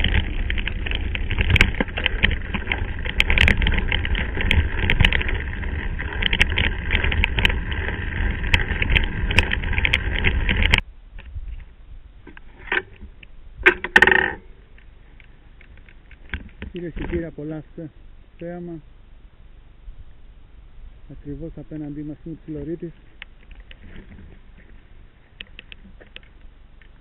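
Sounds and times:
tyres crunching on stones: 0:00.0 - 0:10.8
bike rattling: 0:00.0 - 0:10.9, 0:11.5 - 0:17.5, 0:21.7 - 0:27.0
wind rumbling on microphone: 0:00.0 - 0:18.3, 0:19.2 - 0:27.0.

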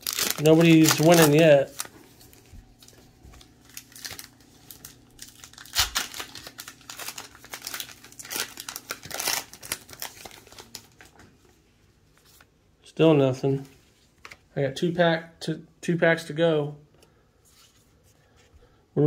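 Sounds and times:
trading cards rustling: 0:00.0 - 0:11.5.

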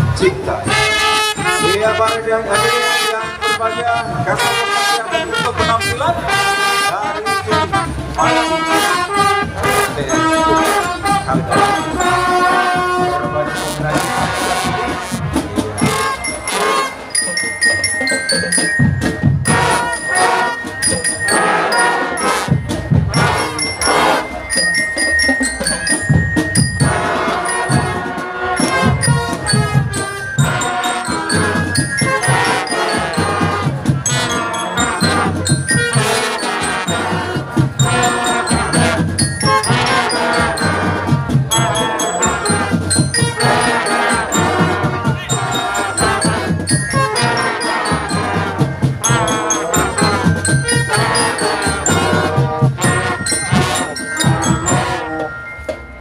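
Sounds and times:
marching drums beat: 0:00.0 - 0:55.3
brass playing melody: 0:00.0 - 0:55.7
bell-lyre notes: 0:00.0 - 0:56.0.

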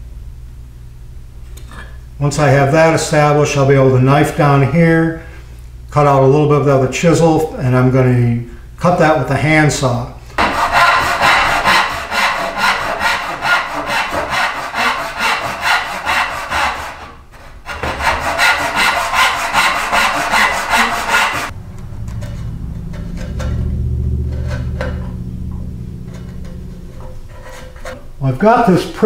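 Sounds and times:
low steady hum: 0:00.0 - 0:29.0
handsaw cutting wood: 0:10.4 - 0:21.5.

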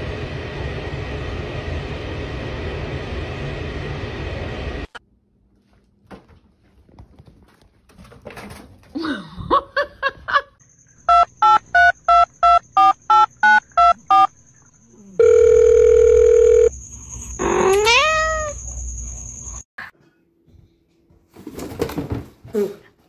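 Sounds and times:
telephone dial tone: 0:15.2 - 0:16.7.

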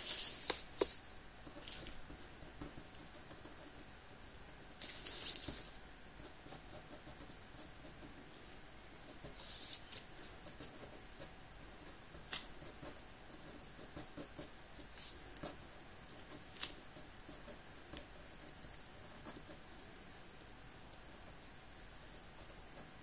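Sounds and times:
pen scratching on paper: 0:04.8 - 0:08.3, 0:09.0 - 0:19.6, 0:22.1 - 0:23.0.

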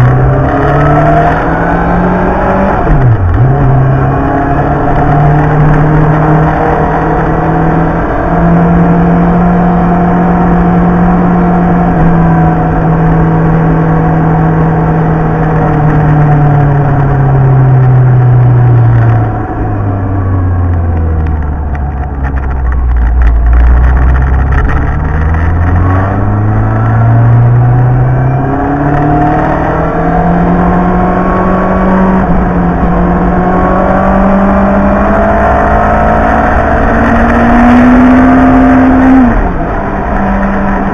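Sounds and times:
motorcycle engine: 0:00.0 - 0:40.9
wind noise: 0:00.0 - 0:40.9.

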